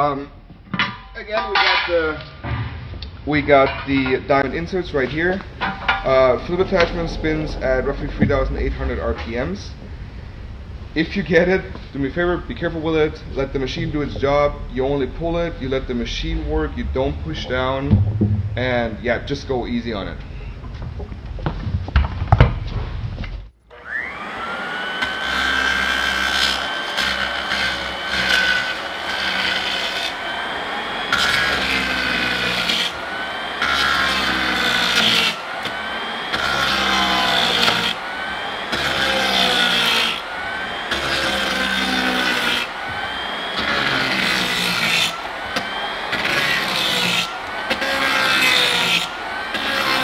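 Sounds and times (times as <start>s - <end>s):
floor edger motor whine: 23.7s - 50.0s.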